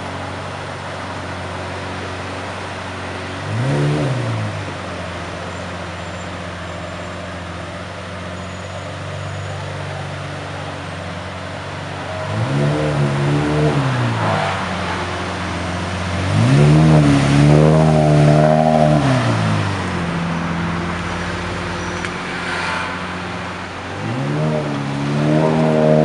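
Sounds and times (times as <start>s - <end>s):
car engine idling and revving: 0.0s - 26.0s.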